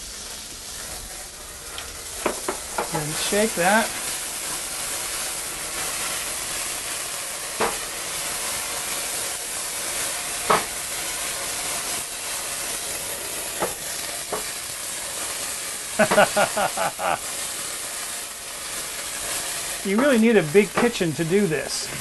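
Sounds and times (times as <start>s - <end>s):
flambe sizzling hiss: 0.0s - 22.0s
pan knocking on stove: 2.2s - 3.0s, 7.6s - 7.8s, 10.5s - 10.7s.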